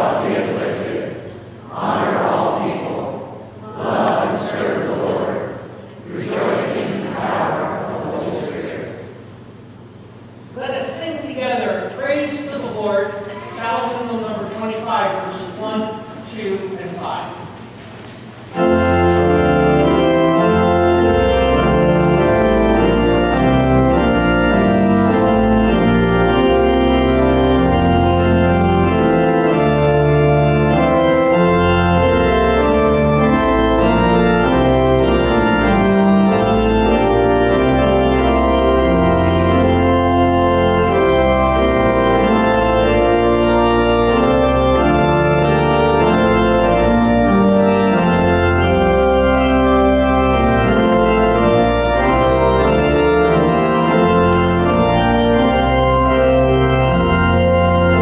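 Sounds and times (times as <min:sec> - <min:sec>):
church organ playing a hymn: 0:00.0 - 0:58.0.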